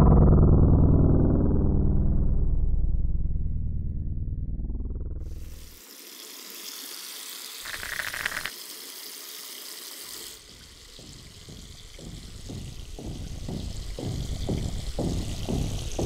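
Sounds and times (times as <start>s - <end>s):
tap water running into sink: 5.3s - 16.0s.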